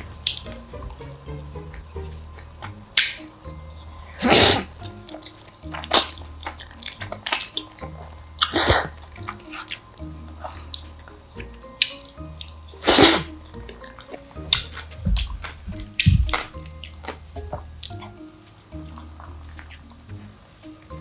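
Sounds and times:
smacking chewing clicks: 0.0 - 21.0
soft background music: 0.0 - 21.0
wet noodle slurps: 4.1 - 7.7, 11.8 - 13.3.

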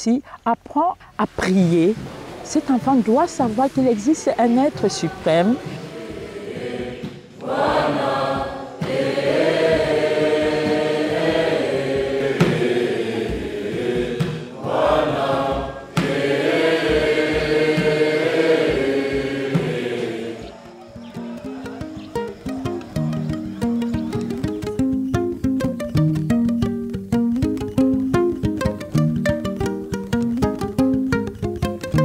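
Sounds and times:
students singing a chant: 4.0 - 22.6.

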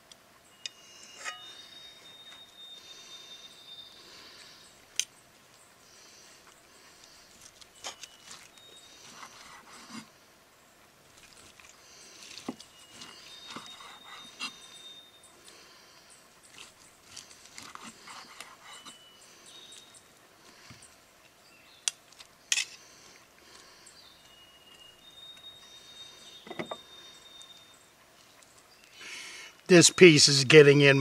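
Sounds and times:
bird whistling: 12.7 - 15.3.

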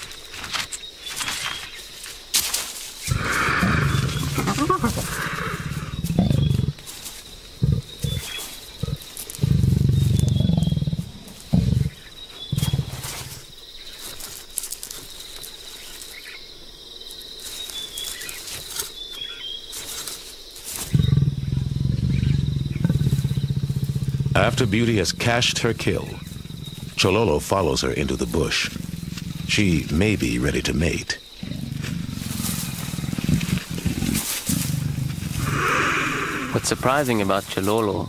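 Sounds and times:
leopard growling: 3.0 - 13.5, 20.8 - 38.0.

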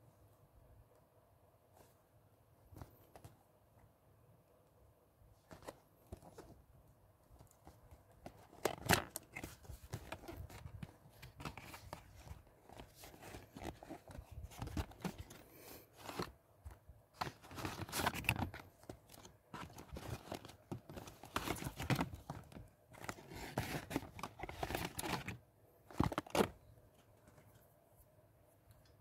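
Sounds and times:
cardboard scraping and rustling: 7.4 - 26.6.

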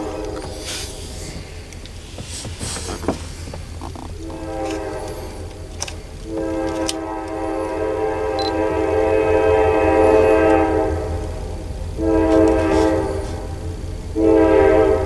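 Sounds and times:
locomotive air horn: 0.0 - 1.3, 4.2 - 15.0.

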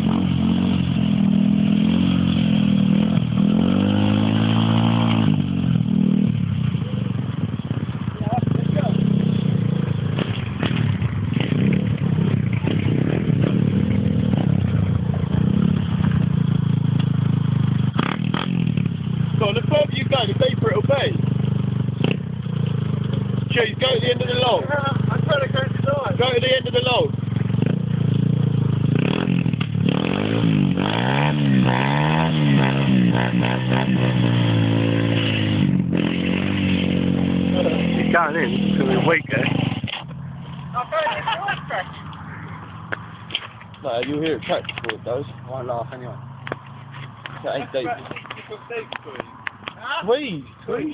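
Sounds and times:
small motorbike engine revving: 0.0 - 40.1.

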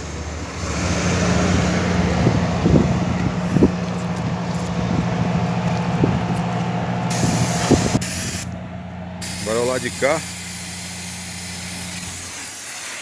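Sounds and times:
low machine hum: 0.0 - 12.1
high hiss: 9.2 - 13.0.

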